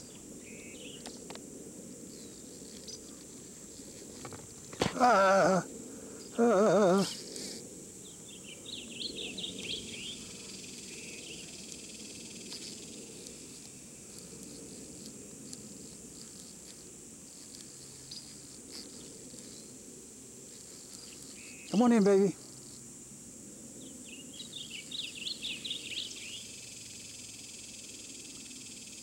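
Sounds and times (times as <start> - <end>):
high insect drone: 0.0 - 29.0
man's short loud call: 4.8 - 5.7.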